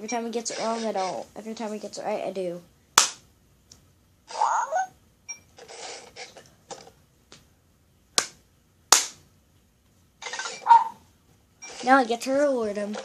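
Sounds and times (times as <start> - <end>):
sharp cracks: 3.0 - 3.2, 8.2 - 9.2
toy robot dog electronic sounds: 4.3 - 4.9, 10.4 - 11.0.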